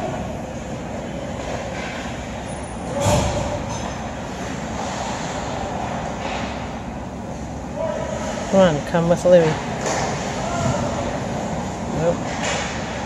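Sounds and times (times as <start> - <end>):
arena background noise: 0.0 - 13.0
ice skates on rink: 4.2 - 6.6.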